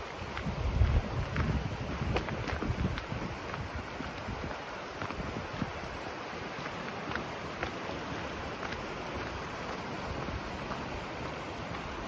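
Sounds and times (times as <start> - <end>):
footsteps on gravel: 0.0 - 12.0
river rushing over rocks: 0.0 - 12.0.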